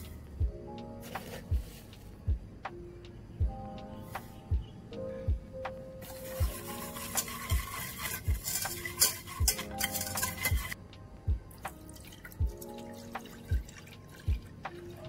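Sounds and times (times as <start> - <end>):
background music with steady beat: 0.0 - 15.0
whisk scraping a steel pot: 6.0 - 10.8.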